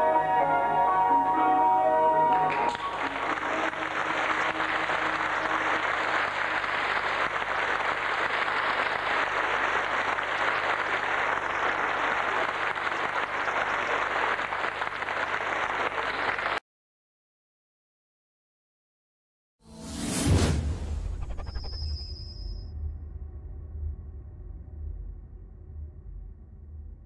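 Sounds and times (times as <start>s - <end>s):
audience applauding: 0.0s - 16.6s.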